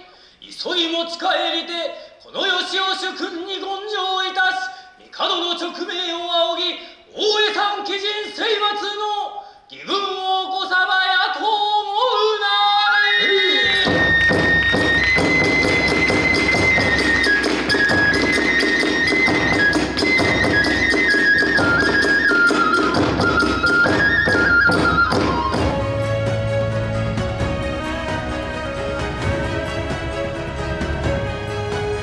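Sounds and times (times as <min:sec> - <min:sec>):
bamboo flute melody: 0:12.9 - 0:32.0
large drum strokes: 0:13.7 - 0:32.0.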